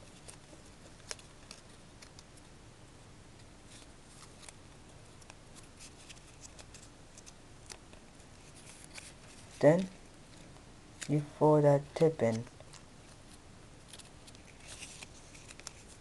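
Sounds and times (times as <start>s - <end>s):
paper strip crinkling: 0.0s - 2.5s, 3.7s - 11.1s, 12.3s - 16.0s.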